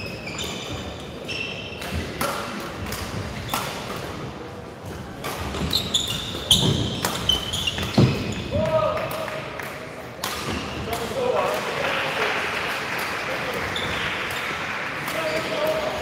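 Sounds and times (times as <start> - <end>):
shoes squeaking on court floor: 0.0 - 2.3, 4.8 - 8.7, 13.6 - 15.9.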